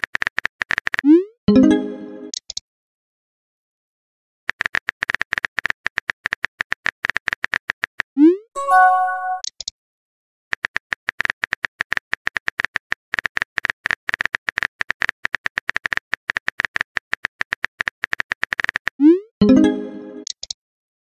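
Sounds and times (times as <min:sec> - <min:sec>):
short chime: 0:08.6 - 0:09.4.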